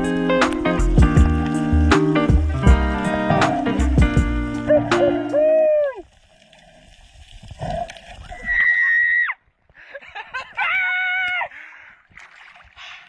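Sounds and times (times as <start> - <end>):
person squealing: 4.7 - 6.0, 8.3 - 9.4
person whooping: 4.7 - 6.0, 8.3 - 9.4, 10.6 - 11.5
water sloshing: 11.5 - 13.0.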